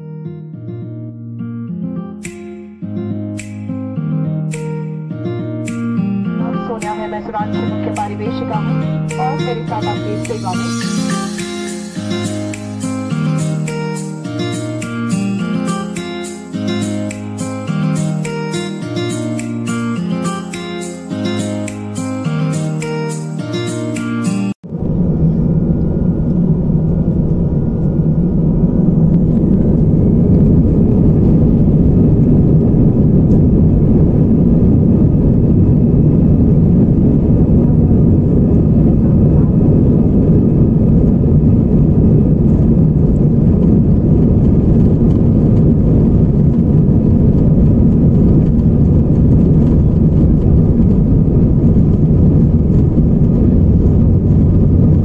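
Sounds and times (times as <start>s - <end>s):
jet engines rumbling: 24.6s - 55.0s.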